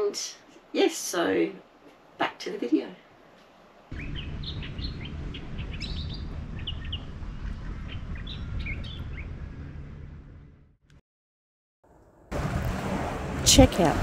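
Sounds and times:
small birds chirping: 3.9s - 9.4s
low outdoor rumble: 3.9s - 10.8s.

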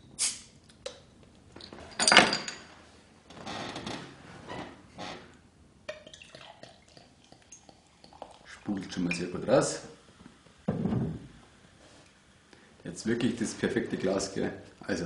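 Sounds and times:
glass clinking: 1.9s - 2.7s
beer pouring into glass: 5.9s - 9.8s.

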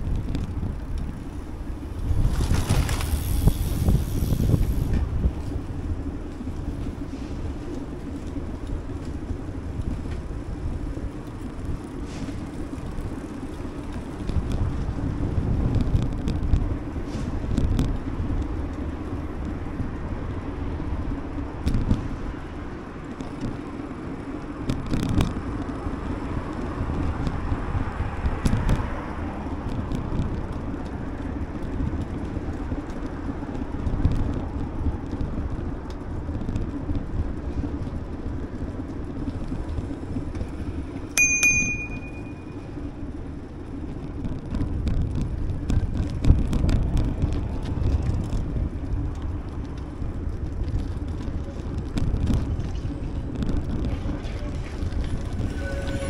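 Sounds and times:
bicycle rattles and clicks: 0.0s - 56.0s
bicycle tyre rumble: 0.0s - 56.0s
bicycle bell ring: 41.2s - 42.6s.

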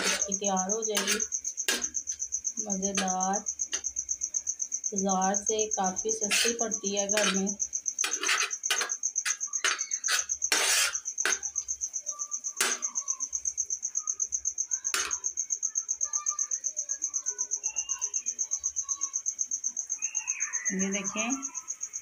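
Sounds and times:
metal spatula scraping a griddle: 0.0s - 2.0s, 2.8s - 3.9s, 5.5s - 11.6s, 12.6s - 12.9s, 14.9s - 15.2s
cricket trilling: 0.0s - 22.0s.

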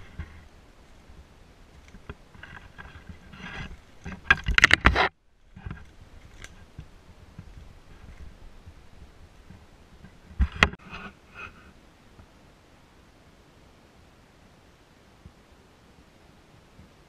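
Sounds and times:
scraping and knocking on microphone: 1.9s - 8.4s, 9.4s - 11.2s.

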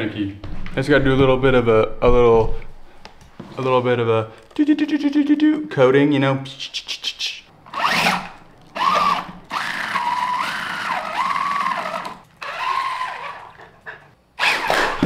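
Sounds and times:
toy car electric motor whining: 7.7s - 8.2s, 8.8s - 13.5s.

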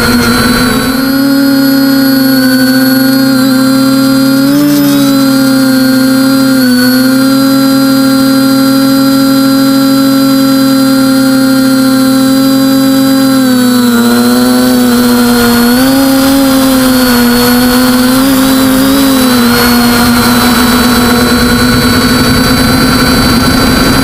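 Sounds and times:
quadcopter motors whining: 0.0s - 24.0s.

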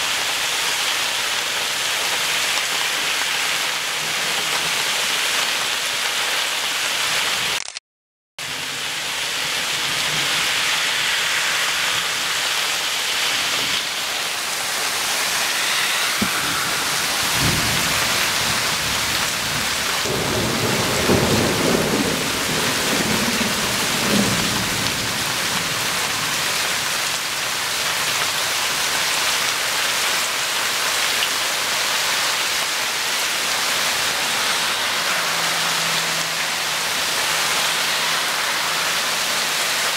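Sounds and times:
heavy rain falling: 0.0s - 7.6s, 8.4s - 39.9s
thunder rumbling: 8.4s - 26.7s.

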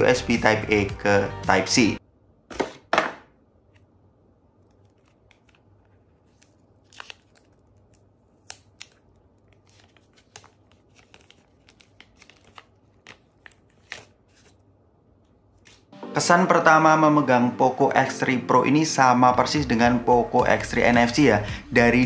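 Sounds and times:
plastic film peeling off screen: 4.6s - 14.6s.

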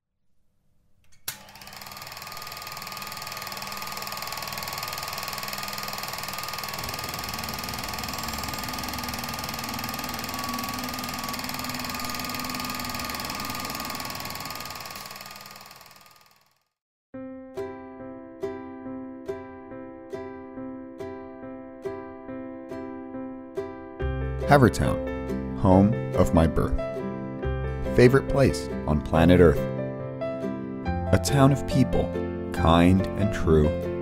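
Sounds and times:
projector click: 1.0s - 16.1s
film projector clattering: 1.1s - 16.6s.

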